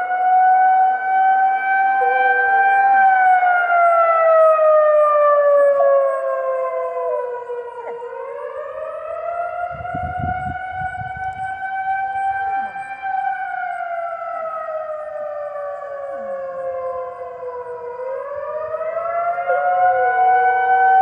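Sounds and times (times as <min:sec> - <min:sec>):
warning siren wailing: 0:00.0 - 0:21.0
dog howling: 0:04.8 - 0:08.5, 0:19.3 - 0:20.3.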